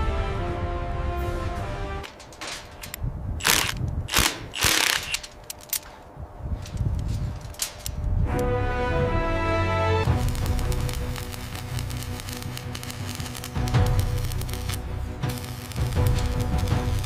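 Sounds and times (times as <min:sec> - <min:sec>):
background music: 0:00.0 - 0:02.1, 0:08.2 - 0:17.0
mechanical clicking and ratcheting: 0:02.8 - 0:05.9, 0:10.1 - 0:17.0.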